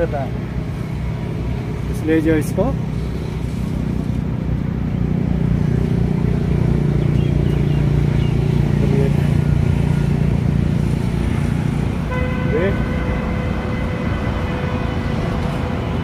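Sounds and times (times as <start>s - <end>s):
vehicle engine rumble: 0.0s - 16.0s.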